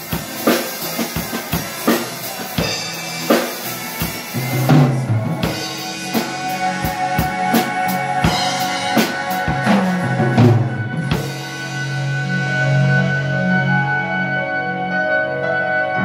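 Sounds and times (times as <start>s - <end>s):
drum and cymbal hits: 0.0s - 12.9s
sustained keyboard chords: 0.0s - 16.0s.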